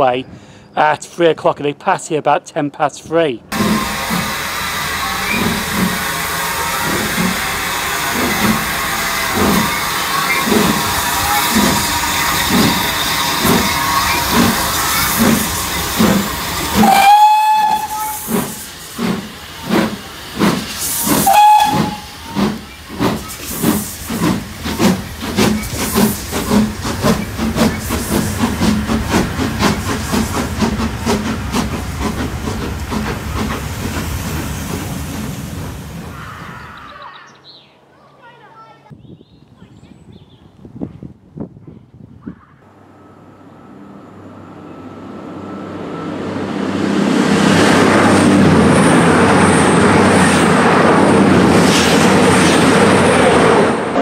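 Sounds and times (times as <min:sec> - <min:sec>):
steam locomotive exhaust beats: 0:03.5 - 0:36.3
steam hissing: 0:03.5 - 0:36.6
steam whistle blasts: 0:16.7 - 0:18.6, 0:21.1 - 0:22.5.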